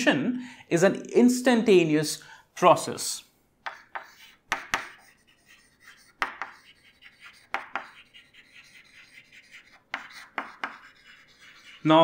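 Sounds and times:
chalk tapping on chalkboard: 0:03.6 - 0:11.9
chalk scratching: 0:03.6 - 0:12.0.

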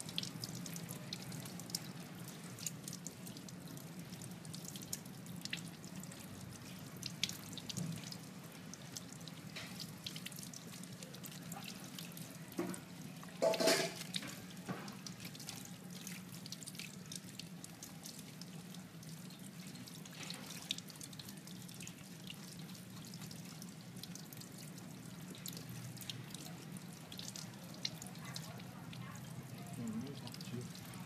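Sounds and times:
water splashes and drips: 0:00.0 - 0:31.0
tap running into metal sink: 0:12.6 - 0:15.0.

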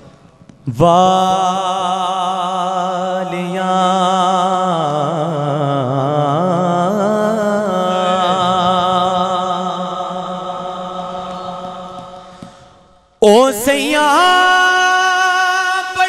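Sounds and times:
man singing melismatic phrase: 0:00.7 - 0:11.2, 0:13.2 - 0:16.0.

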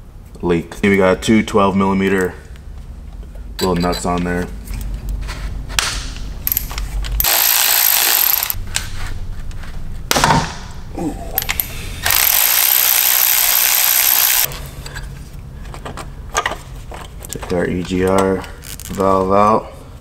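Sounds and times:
power tool spinning off nuts: 0:07.2 - 0:08.6, 0:12.0 - 0:14.5.

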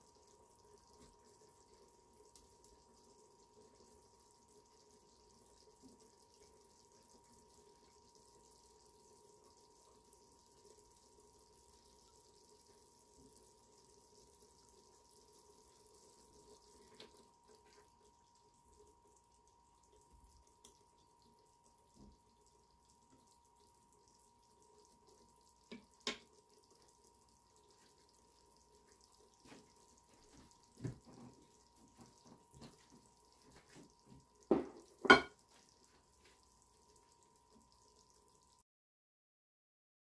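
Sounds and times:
dish set down knocking: 0:34.5 - 0:35.4
kitchenware clinking on countertop: 0:34.5 - 0:35.4
faint steady high tone: 0:34.6 - 0:35.4.

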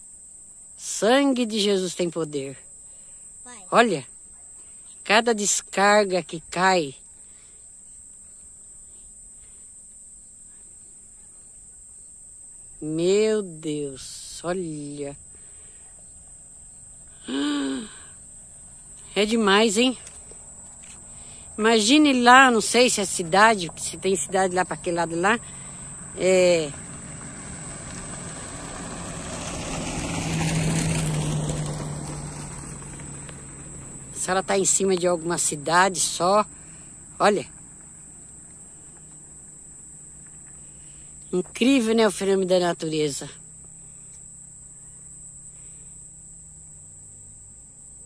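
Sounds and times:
crickets chirring: 0:00.0 - 0:48.0
motor vehicle passing: 0:14.8 - 0:41.6.

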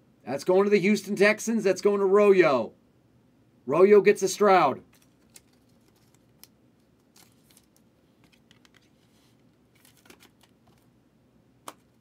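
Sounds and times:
card and plastic sleeve handled: 0:04.9 - 0:10.9, 0:11.6 - 0:12.0.

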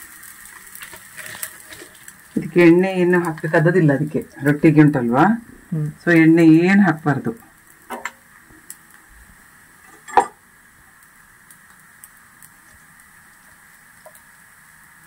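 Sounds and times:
gas stove burner hiss: 0:00.0 - 0:15.0
metallic clink of kitchenware: 0:09.9 - 0:10.4.

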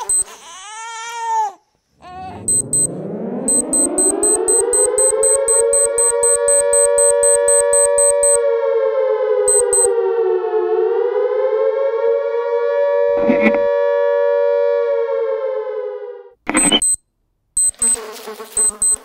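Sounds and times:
rapid high electronic beeping: 0:00.0 - 0:00.2, 0:02.5 - 0:02.9, 0:03.5 - 0:08.4, 0:09.5 - 0:09.9, 0:16.5 - 0:17.0, 0:17.6 - 0:18.0, 0:18.6 - 0:19.0
siren wail: 0:02.0 - 0:16.4.

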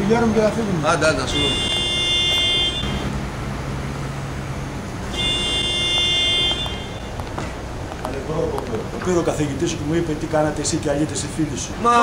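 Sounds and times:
street noise: 0:00.0 - 0:12.0
vehicle horn blasts: 0:01.3 - 0:03.2, 0:05.1 - 0:07.2.

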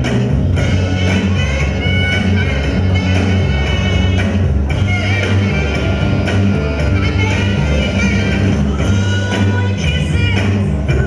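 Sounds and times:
music with heavy bass line: 0:00.0 - 0:11.0.

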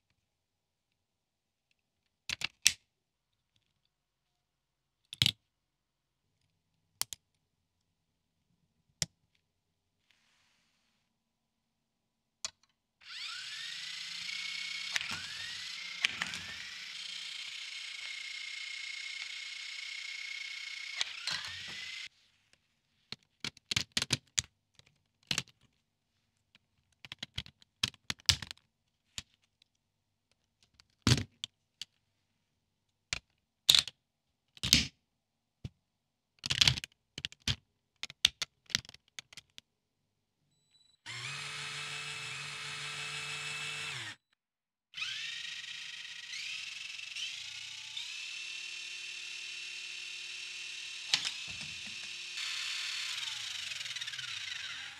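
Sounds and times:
small electric motor whining: 0:13.0 - 0:22.1, 0:41.1 - 0:44.4, 0:45.0 - 0:54.9
plastic parts clicking together: 0:51.0 - 0:52.2.

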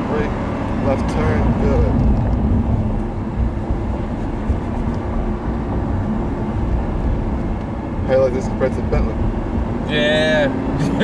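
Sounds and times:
car engine running: 0:00.0 - 0:11.0
road noise: 0:00.0 - 0:11.0
wind noise: 0:01.1 - 0:09.8.

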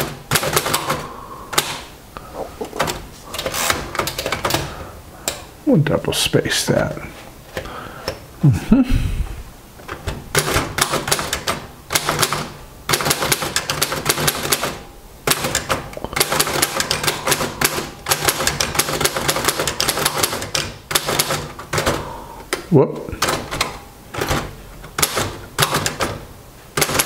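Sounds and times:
typewriter keys clacking: 0:00.0 - 0:01.8, 0:02.7 - 0:04.7, 0:09.9 - 0:22.1, 0:23.2 - 0:27.0
typewriter carriage return: 0:00.0 - 0:01.9, 0:02.7 - 0:04.8, 0:09.8 - 0:27.0.

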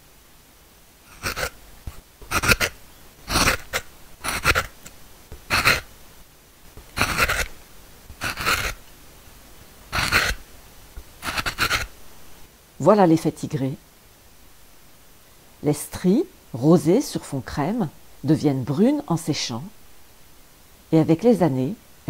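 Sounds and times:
chisel scraping wood: 0:01.1 - 0:05.9, 0:06.8 - 0:07.5, 0:08.1 - 0:08.8, 0:10.0 - 0:10.4, 0:11.2 - 0:11.9.

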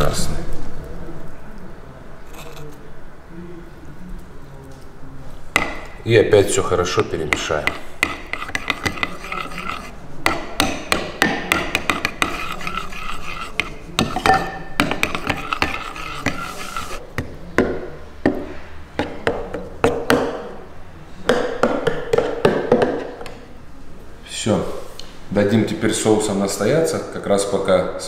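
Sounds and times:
metal spoon scraping ceramic bowl: 0:02.2 - 0:02.8, 0:07.1 - 0:10.6, 0:11.4 - 0:17.0.

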